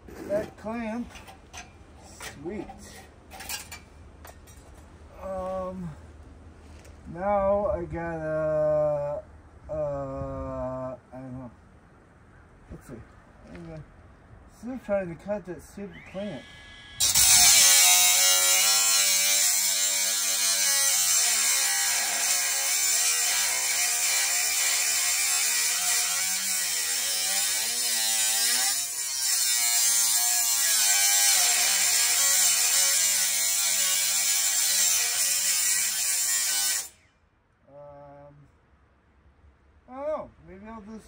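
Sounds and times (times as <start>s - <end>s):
power tool cutting metal: 16.0s - 37.1s.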